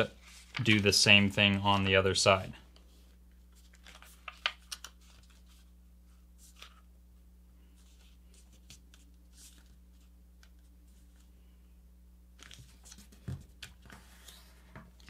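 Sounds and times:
paper rustling and crinkling: 0:02.9 - 0:06.9, 0:07.8 - 0:11.3.

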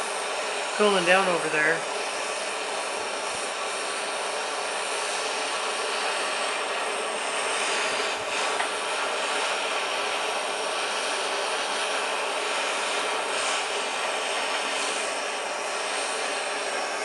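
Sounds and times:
gas torch hissing: 0:00.0 - 0:17.0.

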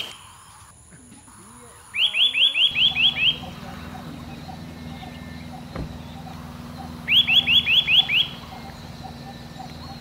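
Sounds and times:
bird calling sharp upward notes: 0:01.9 - 0:10.0
steady low hum: 0:02.7 - 0:10.0
thump: 0:05.7 - 0:06.0.

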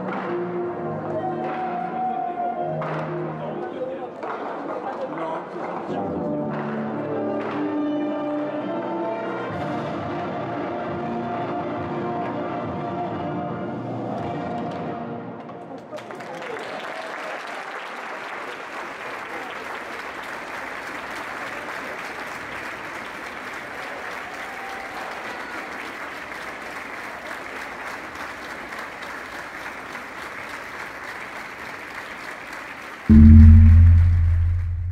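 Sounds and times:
audience applause: 0:15.7 - 0:33.1
loud low hum: 0:33.1 - 0:34.9.

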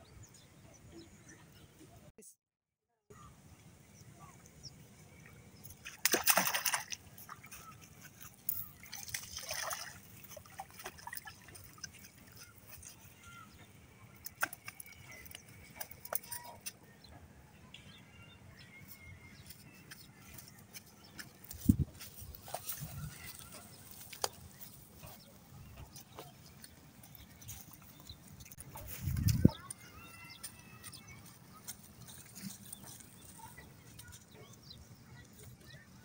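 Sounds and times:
fish thrashing and splashing: 0:05.8 - 0:13.0.

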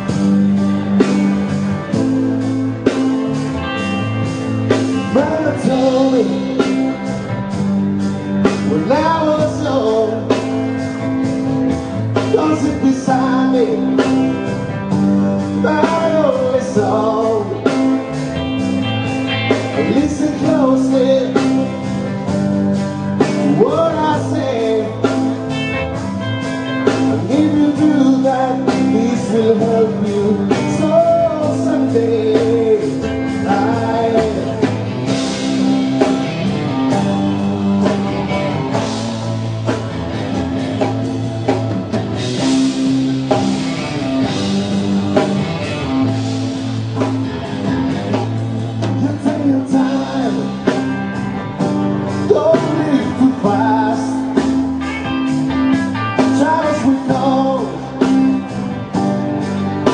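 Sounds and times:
rock band playing live: 0:00.0 - 0:59.9
lead vocal singing: 0:04.6 - 0:18.4, 0:19.4 - 0:25.9, 0:26.8 - 0:39.0, 0:48.1 - 0:59.9.

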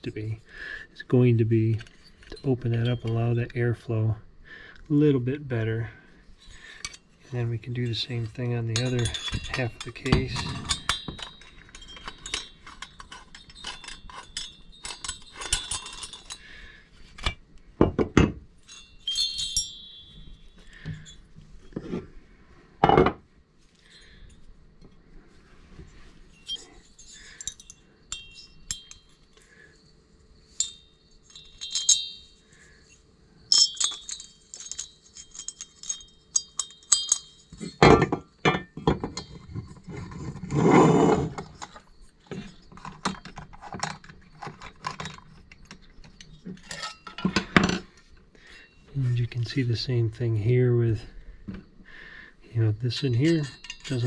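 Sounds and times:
metallic clinks of hand tools: 0:07.7 - 0:17.4, 0:18.6 - 0:21.4, 0:26.3 - 0:29.8, 0:30.5 - 0:40.3, 0:41.0 - 0:48.0, 0:52.5 - 0:54.0.

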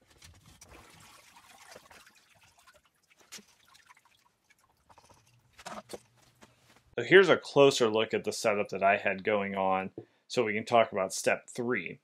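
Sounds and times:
water trickling and dripping: 0:00.5 - 0:05.6.

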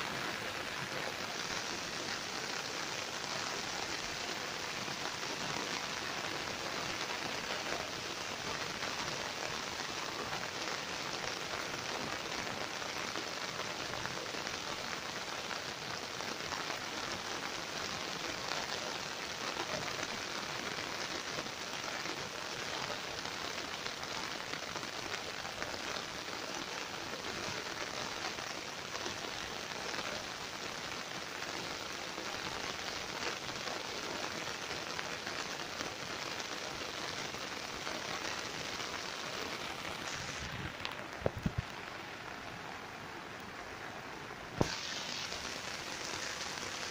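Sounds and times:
steady rain falling: 0:00.0 - 0:46.9.

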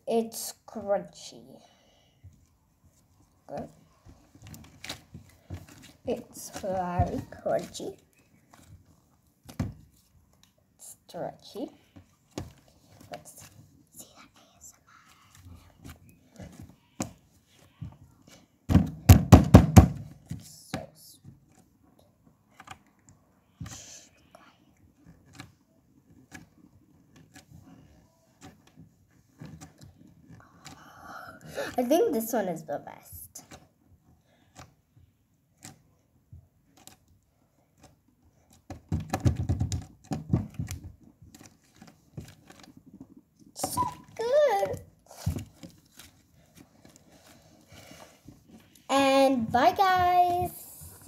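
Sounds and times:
slime thuds and knocks: 0:18.7 - 0:20.4.

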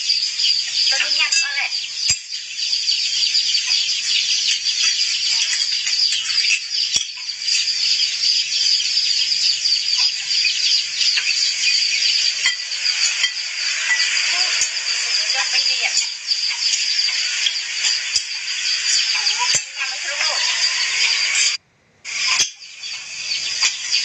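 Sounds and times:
shrill high-pitched drone: 0:11.6 - 0:21.6.

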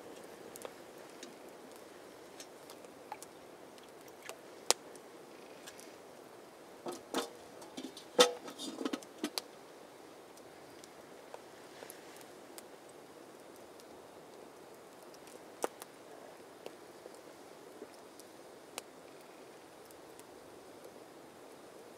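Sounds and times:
faint steady hiss: 0:00.0 - 0:21.9
metal kettle and mug clinking: 0:06.9 - 0:09.0.

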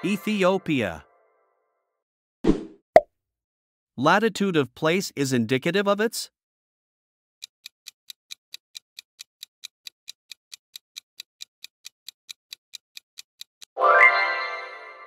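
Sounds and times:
quick clock ticks: 0:07.4 - 0:13.8.

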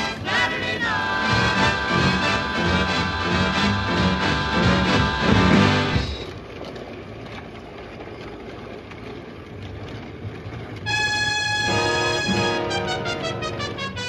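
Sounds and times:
train whistle: 0:00.0 - 0:06.2, 0:10.8 - 0:14.0
model train whirring on track: 0:00.0 - 0:14.0.

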